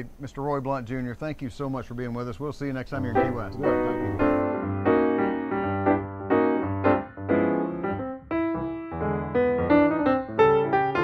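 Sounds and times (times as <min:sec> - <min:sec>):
piano chords: 0:03.0 - 0:11.0.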